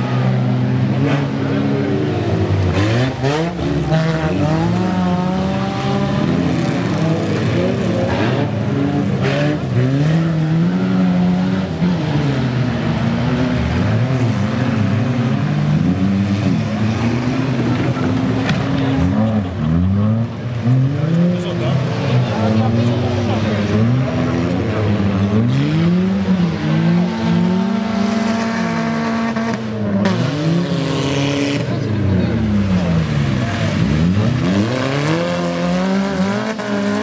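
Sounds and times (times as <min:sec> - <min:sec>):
race car engines revving: 0:00.0 - 0:37.0.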